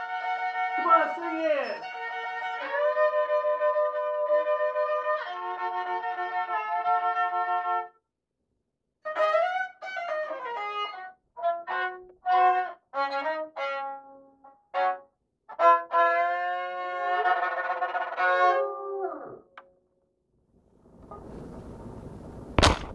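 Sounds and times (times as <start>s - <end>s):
solo violin melody: 0.0s - 7.9s, 9.0s - 18.6s.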